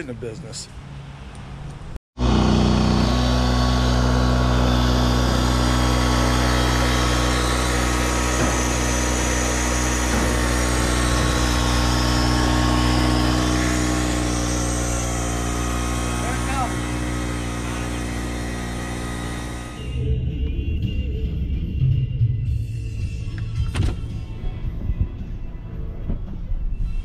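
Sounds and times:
pump engine humming: 2.2 - 20.0.

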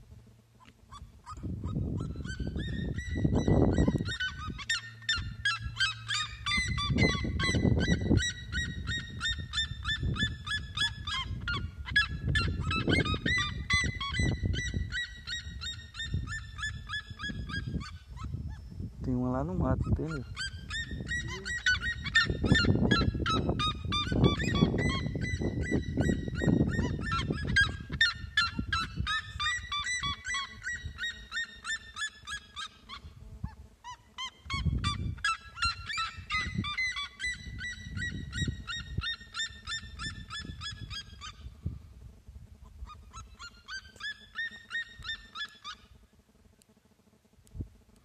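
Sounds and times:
birds calling rapid repeated notes: 19.3 - 33.0.

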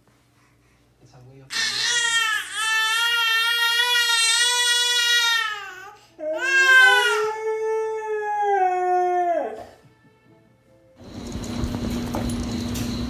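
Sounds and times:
baby crying: 1.5 - 9.7
husky howling: 6.4 - 9.8
steady low hum: 11.0 - 13.0.

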